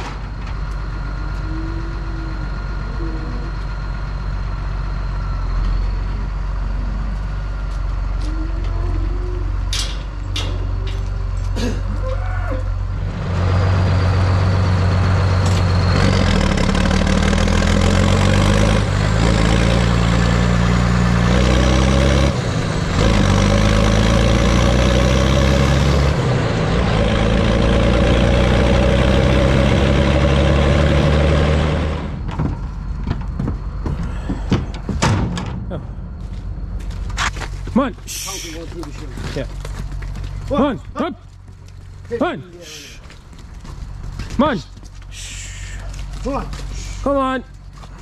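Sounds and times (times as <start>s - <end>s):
tractor diesel engine: 0.0s - 48.0s.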